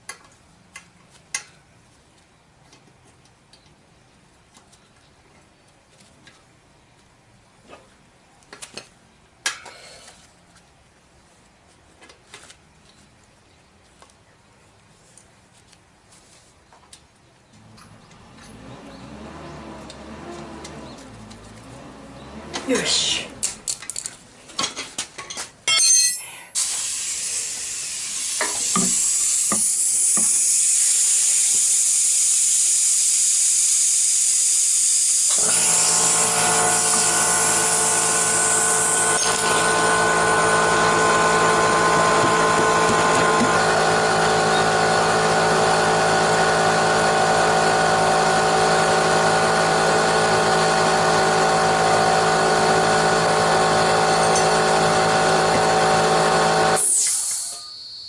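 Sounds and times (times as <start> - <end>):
loud steady hiss: 26.6 - 40.3
motor humming: 35.2 - 57.5.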